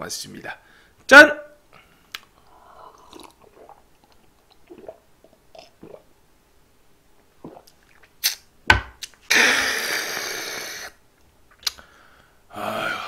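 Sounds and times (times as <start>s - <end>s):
person gulping: 2.2s - 6.1s, 7.4s - 8.5s
person exhaling: 9.3s - 11.0s, 11.7s - 13.0s.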